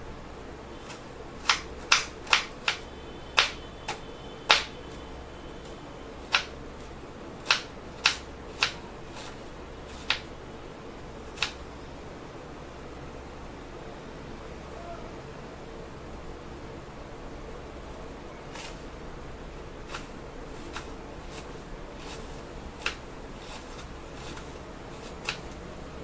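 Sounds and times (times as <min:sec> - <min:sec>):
knife chopping on wooden board: 0:00.9 - 0:02.8, 0:03.4 - 0:04.7, 0:06.2 - 0:06.5, 0:07.4 - 0:10.3, 0:11.4 - 0:11.6, 0:19.8 - 0:25.6.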